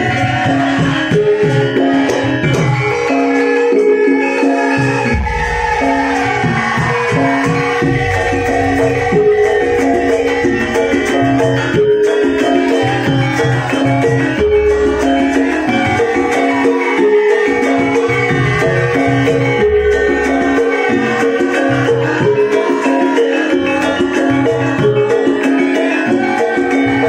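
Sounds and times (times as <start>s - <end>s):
metallophones ringing melody: 0.0s - 27.0s
low drumming: 5.1s - 11.3s.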